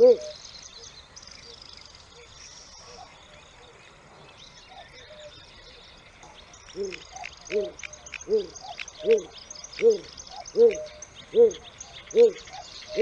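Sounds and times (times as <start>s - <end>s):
bird hooting call: 0.0s - 0.4s, 6.7s - 13.0s
small birds chirping: 0.0s - 13.0s.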